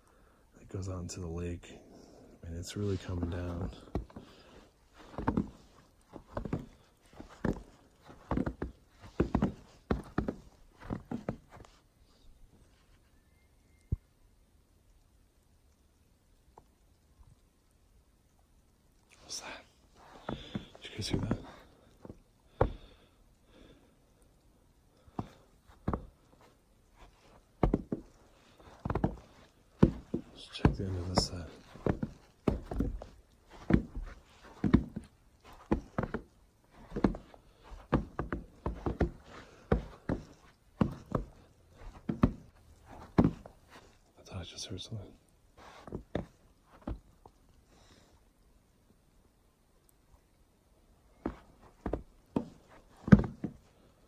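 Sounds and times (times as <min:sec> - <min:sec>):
footsteps on wooden planks: 0:02.7 - 0:11.8, 0:20.1 - 0:23.0, 0:25.0 - 0:44.0, 0:45.6 - 0:47.1, 0:51.1 - 0:53.9.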